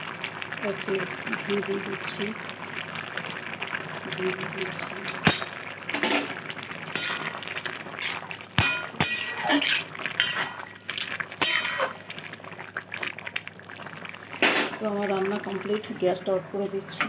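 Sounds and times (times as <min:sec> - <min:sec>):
steel spatula scraping metal pan: 0:05.3 - 0:07.3, 0:08.0 - 0:10.8, 0:11.4 - 0:12.0.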